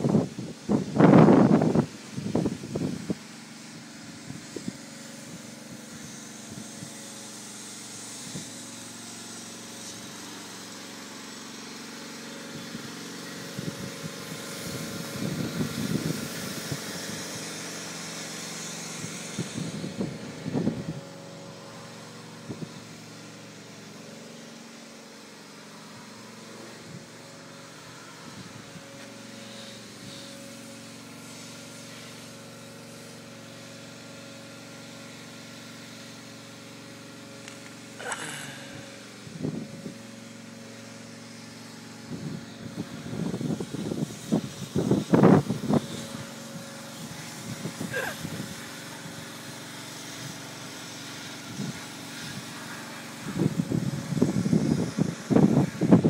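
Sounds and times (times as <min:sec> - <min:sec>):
steady engine hum: 0:00.0 - 0:56.0.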